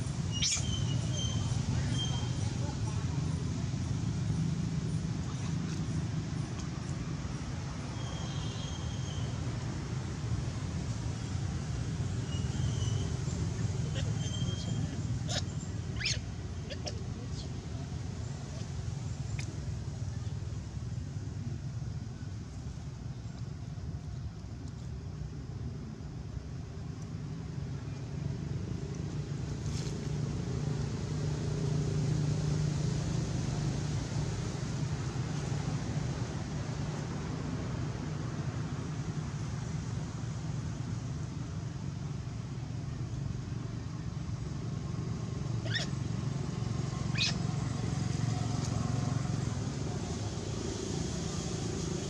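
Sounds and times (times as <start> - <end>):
baby monkey squeaking: 0.3 - 2.4, 14.2 - 16.9, 45.6 - 46.0, 47.1 - 47.4.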